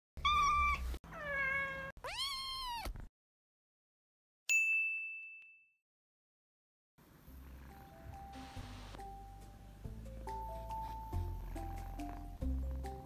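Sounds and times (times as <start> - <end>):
cat meowing: 0.2 - 3.0
bright ding: 4.5 - 5.7.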